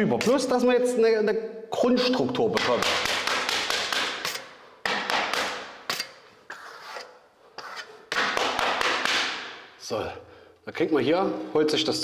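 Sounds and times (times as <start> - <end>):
trowel scraping wet plaster: 5.9 - 8.0.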